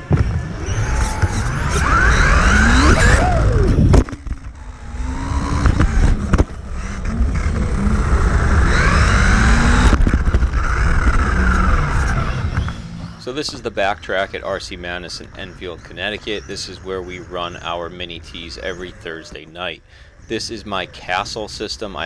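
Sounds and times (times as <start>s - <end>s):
electric motor whining: 0.0s - 13.2s.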